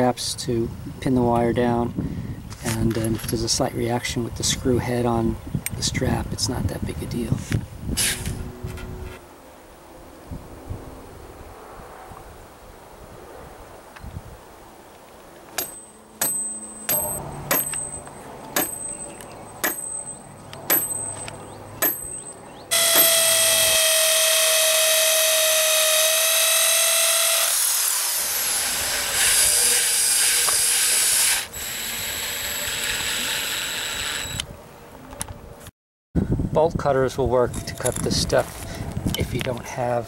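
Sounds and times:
cordless drill driving a screw: 22.7s - 34.5s
electric drill boring into brick: 22.7s - 34.5s.

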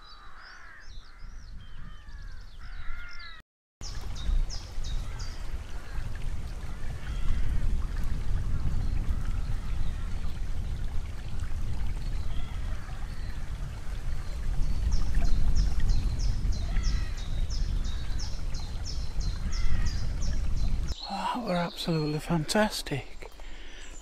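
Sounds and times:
stream trickling over gravel: 3.8s - 24.0s.

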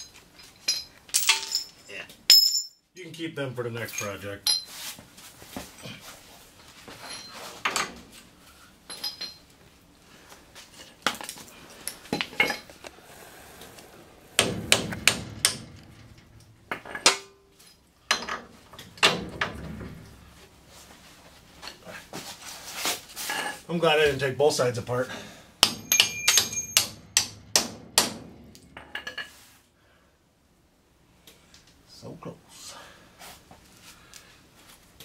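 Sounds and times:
short metallic ring: 25.8s - 27.2s.

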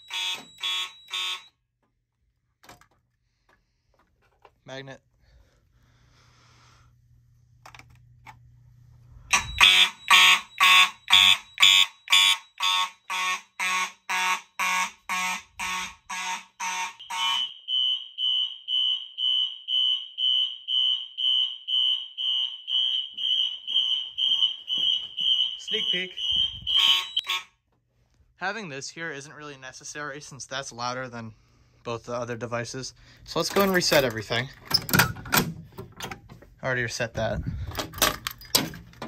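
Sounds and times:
fire alarm horns pulsing: 0.0s - 1.7s, 9.3s - 27.6s.

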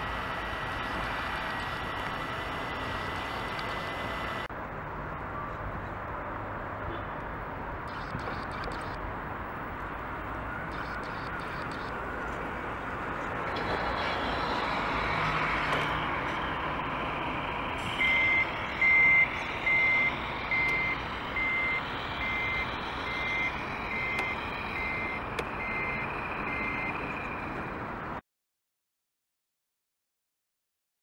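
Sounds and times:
reversing beeper: 13.6s - 27.6s.

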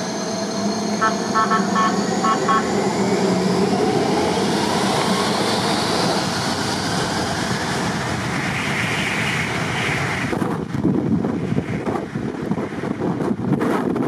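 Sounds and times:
jet engines spooling up: 0.0s - 12.1s
wind buffeting microphone: 2.9s - 14.0s.

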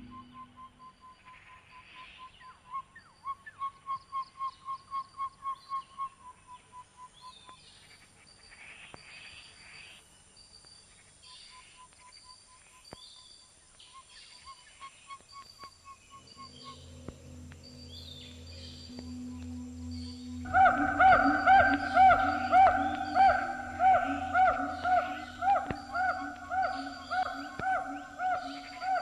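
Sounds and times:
higher chirps: 15.6s - 29.0s.

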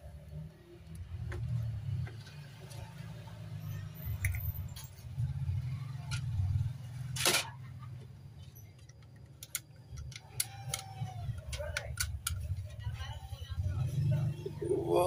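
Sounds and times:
clicks and rattles of handling: 8.6s - 12.8s.

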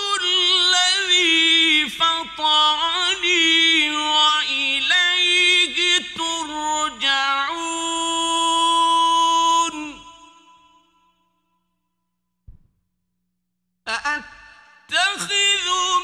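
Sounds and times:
man chanting melodically: 0.0s - 10.4s, 13.9s - 16.0s.

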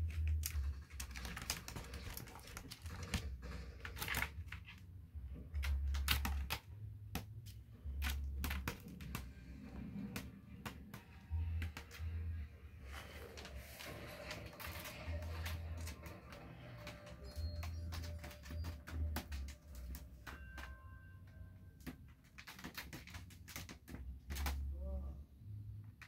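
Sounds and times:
cat claws scratching plastic basket: 0.0s - 4.8s, 5.4s - 12.2s, 12.9s - 20.7s, 21.8s - 24.6s.

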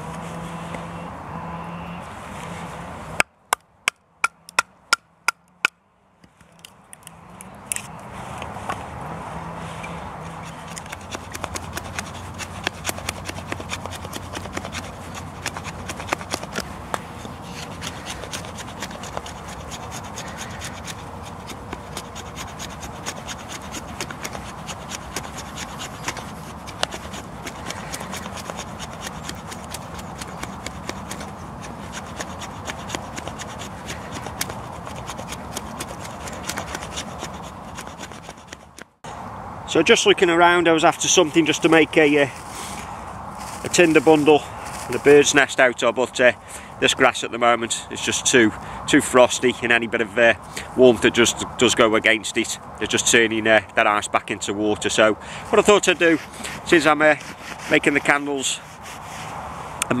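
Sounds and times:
knife scraping wood: 9.6s - 39.0s, 42.4s - 45.4s, 55.2s - 60.0s.

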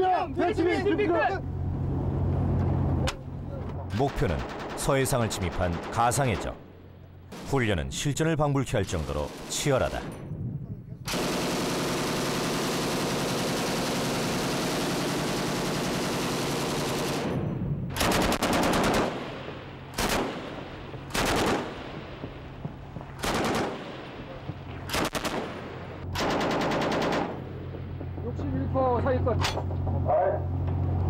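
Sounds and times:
machine gun firing full-auto: 4.3s - 6.1s, 11.1s - 17.3s, 18.0s - 21.9s, 23.2s - 24.0s, 24.9s - 25.6s, 26.2s - 27.5s.

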